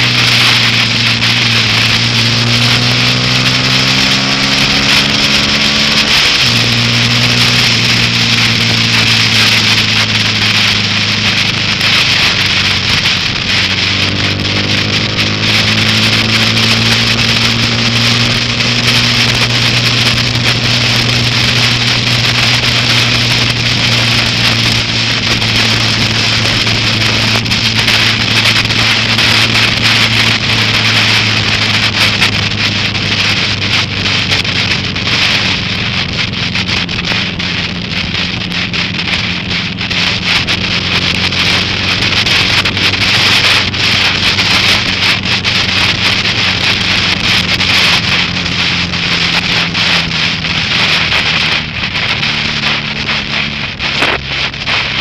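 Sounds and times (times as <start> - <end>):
motorcycle engine running: 0.0 - 55.0
wind and rain hiss: 0.0 - 55.0.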